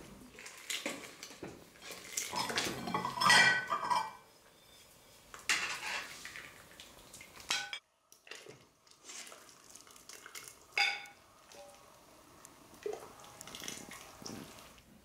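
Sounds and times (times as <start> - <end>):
dishes and cutlery clinking: 0.8 - 4.3, 5.5 - 6.2, 7.5 - 7.8, 10.8 - 11.7.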